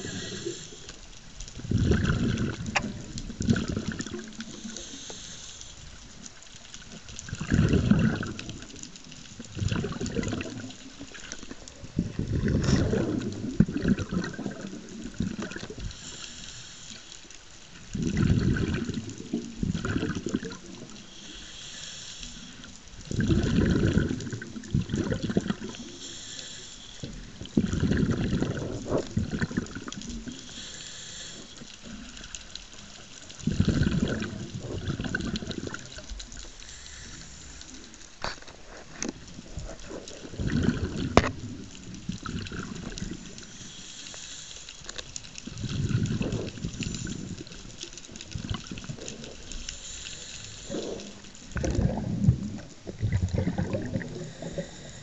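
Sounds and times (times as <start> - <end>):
regulator hiss: 0.0 - 1.0, 4.4 - 5.9, 15.8 - 17.3, 21.0 - 22.7, 25.6 - 27.3, 30.3 - 31.9, 36.5 - 37.9, 43.2 - 45.0, 49.4 - 51.3
exhaled bubbles rumbling underwater: 0.0 - 55.0.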